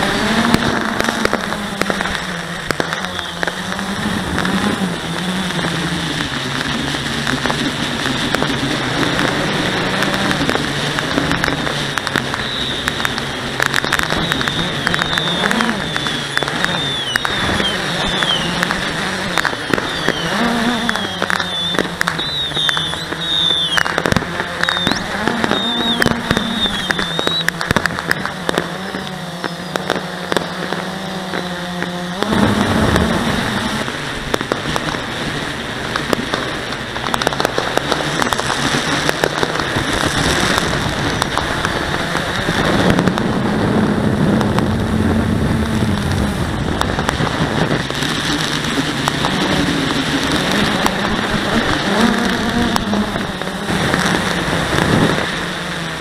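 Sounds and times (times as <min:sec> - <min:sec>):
firework pops and crackles: 0:00.0 - 0:56.0
quadcopter motors humming: 0:00.0 - 0:56.0
rushing noise: 0:00.0 - 0:56.0.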